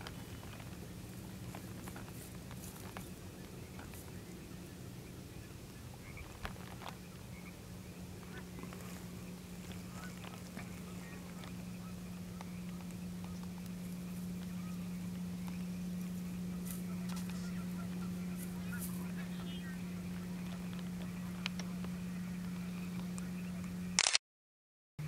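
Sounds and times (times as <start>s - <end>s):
low hum: 0.0s - 24.2s
sharp click: 24.0s - 24.2s.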